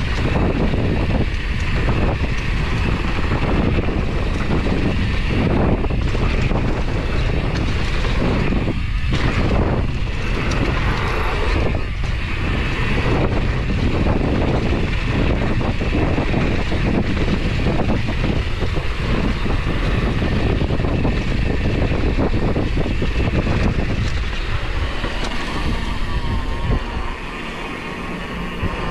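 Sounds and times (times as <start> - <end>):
rough rumble of ride: 0.0 - 28.9
wind buffeting microphone: 0.0 - 28.9.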